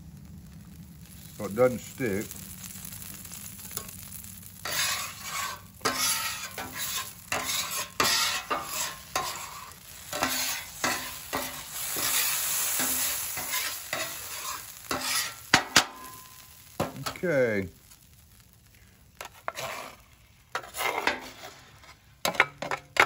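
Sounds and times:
cooking oil sizzling: 0.0s - 23.0s
metal scraper on griddle: 3.7s - 17.2s, 19.2s - 23.0s.

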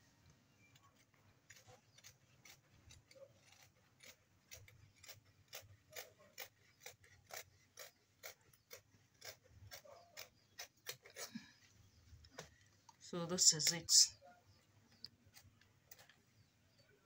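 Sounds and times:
scissors snipping fabric: 1.5s - 11.3s.

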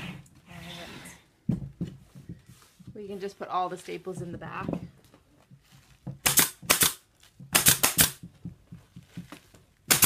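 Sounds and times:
pneumatic stapler firing: 6.2s - 7.0s, 7.6s - 8.2s.

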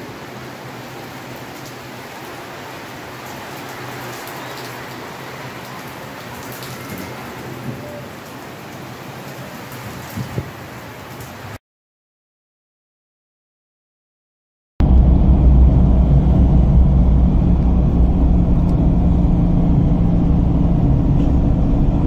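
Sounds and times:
rain falling on puddles: 0.0s - 11.6s.

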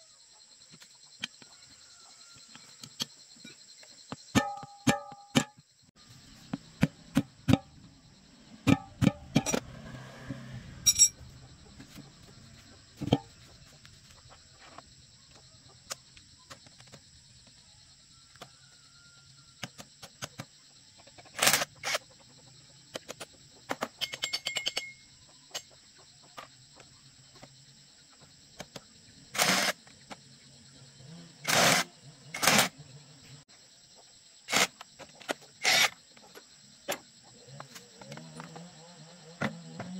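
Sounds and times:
crickets buzzing: 0.0s - 39.9s
spanner clinking on metal bolts: 10.9s - 11.2s, 24.0s - 25.7s
cordless drill running: 35.6s - 35.9s.

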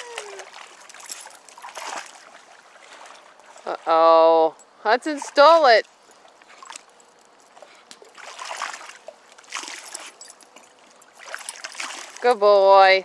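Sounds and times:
water splashing and lapping: 0.0s - 13.0s.

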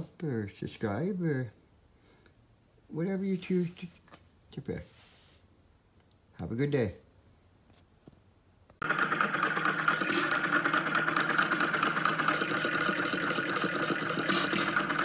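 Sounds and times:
stationary engine clattering: 8.8s - 15.0s.

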